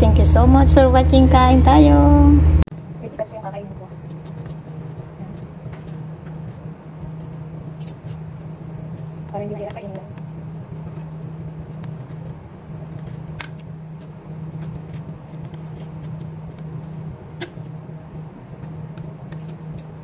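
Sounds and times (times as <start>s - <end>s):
low mechanical hum: 0.0s - 20.0s.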